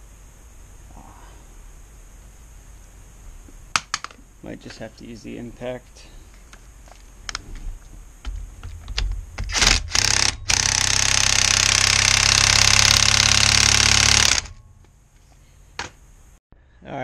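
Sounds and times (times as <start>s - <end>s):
impact driver hammering: 9.4s - 14.6s.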